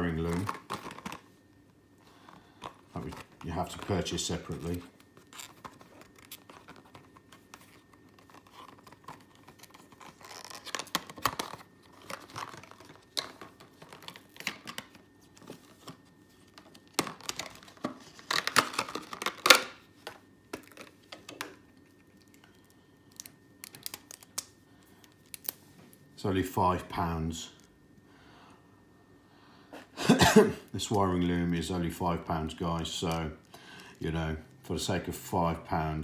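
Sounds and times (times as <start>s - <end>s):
plastic packaging tearing and crinkling: 0.0s - 1.3s, 3.0s - 19.8s, 23.1s - 25.6s.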